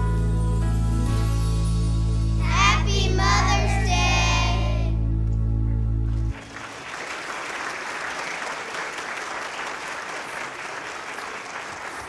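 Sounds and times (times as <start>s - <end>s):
congregation applauding: 6.3s - 12.0s.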